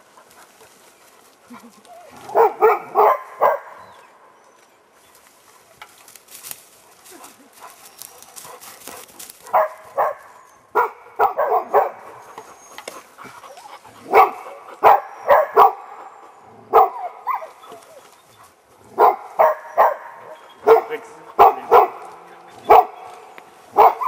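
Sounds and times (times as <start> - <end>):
dog barking: 2.2 - 3.9, 9.4 - 12.1, 14.0 - 16.0, 16.7 - 17.6, 18.9 - 24.0.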